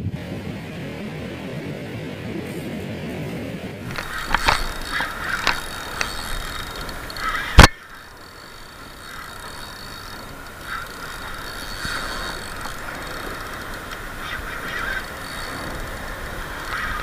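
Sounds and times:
fishing reel clicks: 3.9 - 17.0
fishing reel whirring: 3.9 - 17.0.

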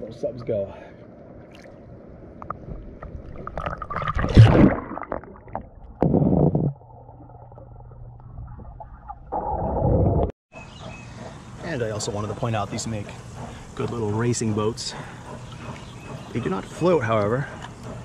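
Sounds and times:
water splashing and gurgling: 1.4 - 10.3
muffled underwater rumbling: 2.5 - 10.3.

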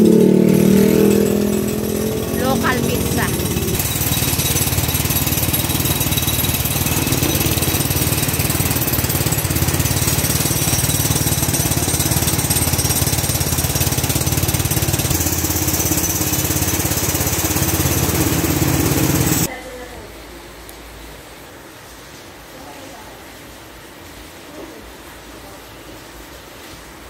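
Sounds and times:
heavy rain pouring: 0.0 - 19.5.

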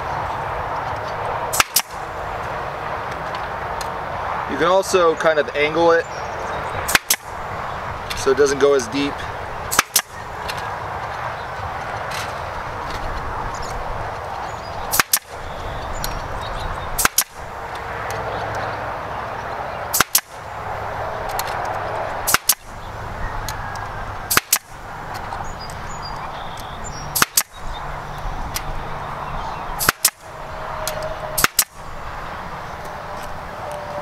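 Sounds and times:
pneumatic stapler firing: 1.5 - 1.9, 6.9 - 7.3, 9.7 - 10.1, 14.9 - 15.3, 17.0 - 17.4, 19.9 - 20.3, 22.3 - 22.6, 24.3 - 24.7, 27.2 - 27.6, 29.8 - 30.2, 31.4 - 31.7.

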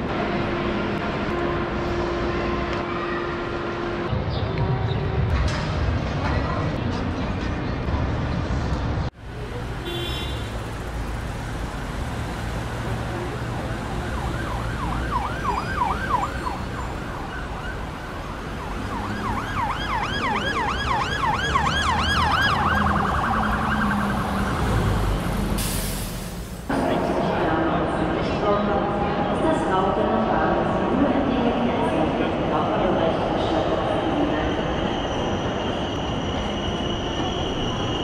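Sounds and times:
city traffic rumble: 0.0 - 38.0
emergency vehicle siren: 12.6 - 25.8.

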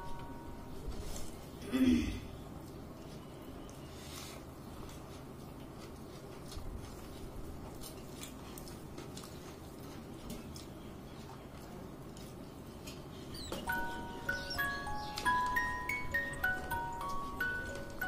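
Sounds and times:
low background hum: 0.0 - 18.0
chewing clicks and smacks: 7.6 - 13.6.

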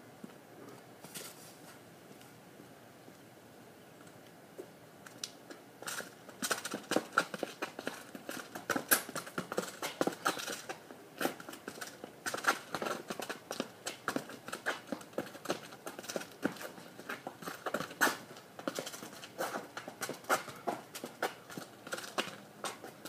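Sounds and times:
quick footsteps on asphalt: 5.1 - 23.0
soccer ball taps: 6.3 - 23.0.

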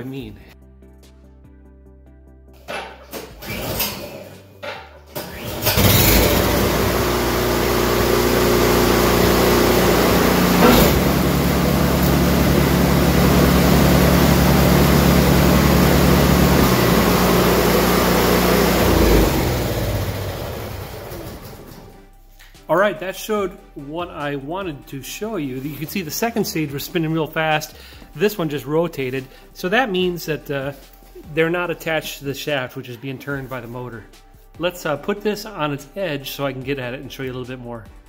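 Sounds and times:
snowblower engine running: 5.2 - 22.0.

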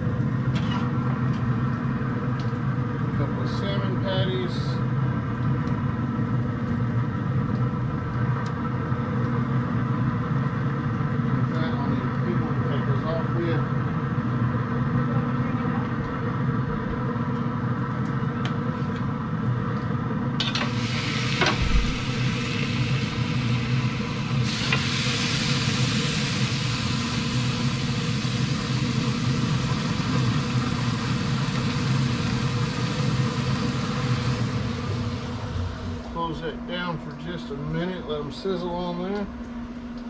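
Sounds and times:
low mechanical hum: 0.0 - 40.0
steaks sizzling on griddle: 20.4 - 35.8.

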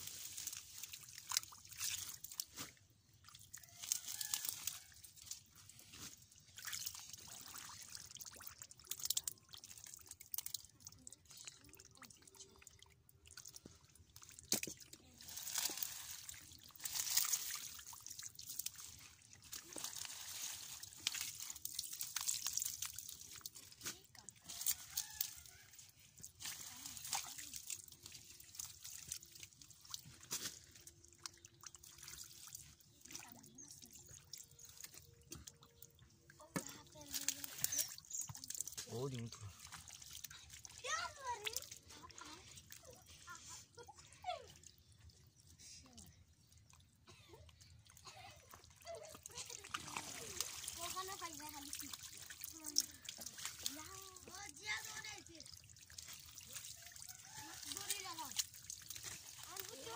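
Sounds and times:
hands splashing in muddy water: 0.0 - 10.8, 48.1 - 59.9
water dripping: 0.0 - 59.9
hand splashing in muddy water: 48.8 - 54.2.

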